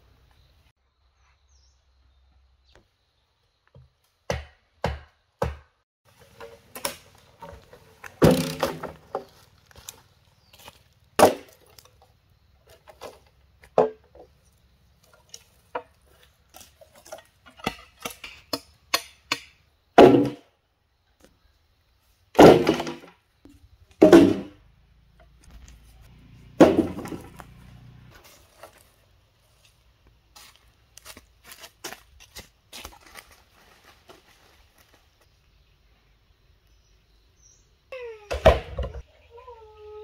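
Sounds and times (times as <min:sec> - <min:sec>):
blade chopping wood: 0:08.2 - 0:09.3, 0:11.2 - 0:11.6, 0:17.0 - 0:20.4, 0:22.4 - 0:23.1, 0:24.0 - 0:24.6, 0:26.6 - 0:27.5.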